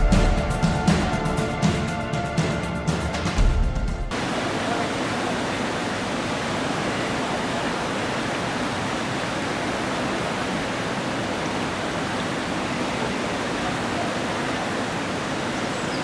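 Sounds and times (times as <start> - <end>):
river water rushing over weir: 4.1 - 16.0.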